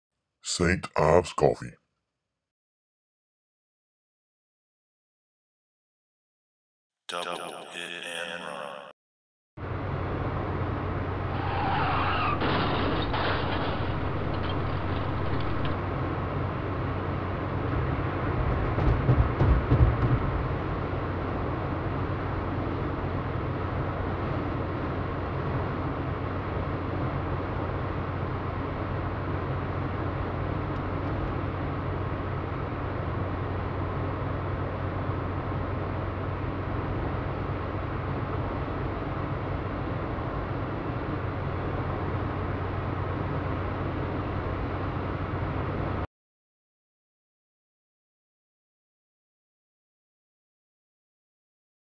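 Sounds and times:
electrical hum: 0:09.6 - 0:46.0
road traffic noise: 0:09.6 - 0:46.0
irregular low rumbling: 0:12.4 - 0:16.0.

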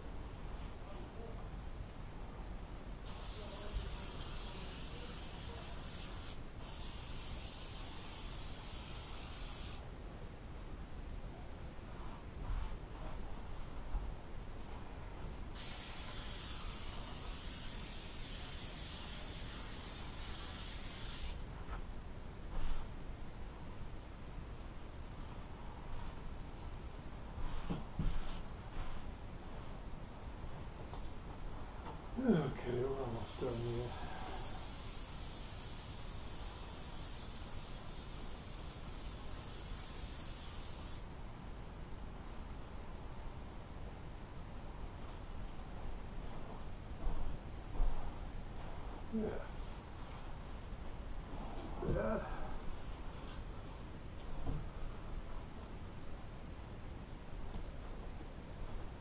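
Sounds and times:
aerosol can spraying: 0:03.1 - 0:09.8, 0:15.6 - 0:21.4, 0:33.1 - 0:41.0.

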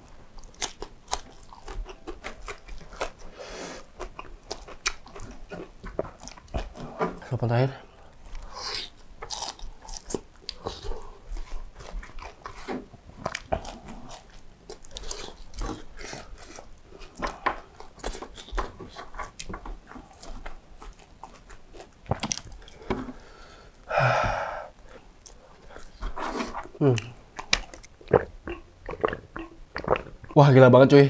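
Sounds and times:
chewing fried chicken: 0:00.3 - 0:22.9, 0:24.8 - 0:30.4
wet mouth clicks and smacks: 0:27.0 - 0:30.4.

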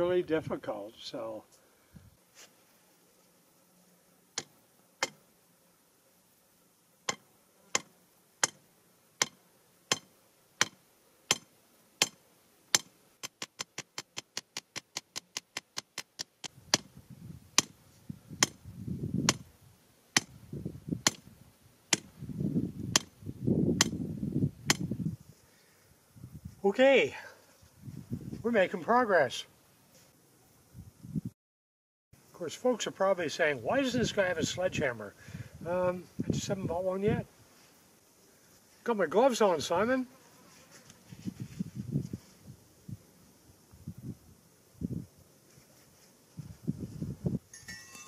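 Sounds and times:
hammer striking metal rod: 0:07.8 - 0:08.6, 0:09.2 - 0:12.2, 0:12.8 - 0:16.9.

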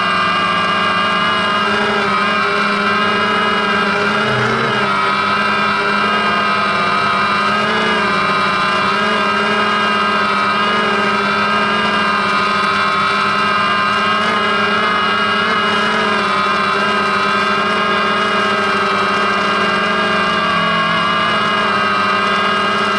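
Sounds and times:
drone motors whining: 0:00.0 - 0:22.9.

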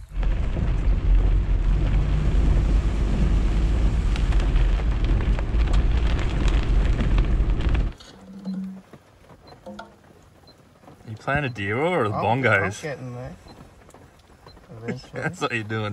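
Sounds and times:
wind buffeting microphone: 0:00.0 - 0:08.0
vehicle engine rumble: 0:00.0 - 0:15.9.

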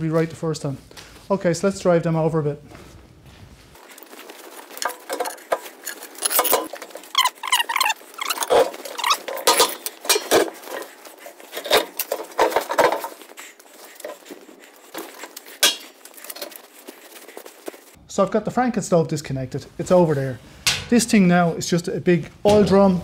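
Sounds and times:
short squeaks: 0:05.2 - 0:09.8.

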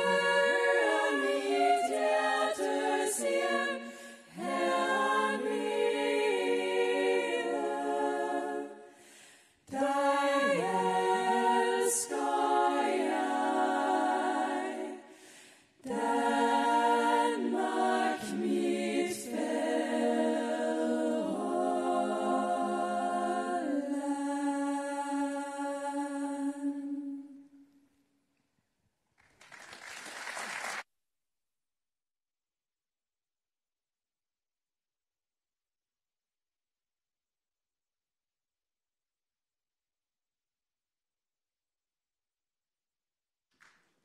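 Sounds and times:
female choir singing a cappella: 0:00.0 - 0:27.6.

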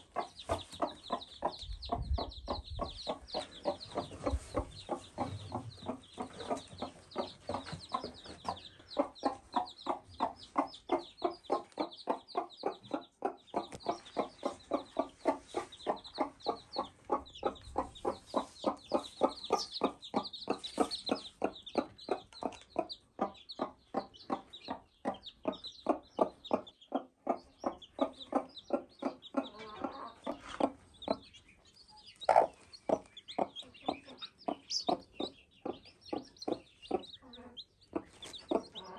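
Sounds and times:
hen clucking: 0:00.0 - 0:38.9.

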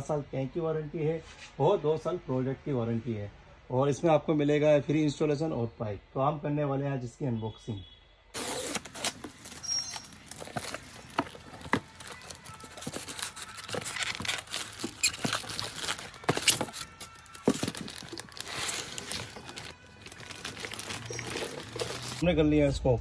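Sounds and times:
plastic wrapping crinkling: 0:08.4 - 0:22.2.

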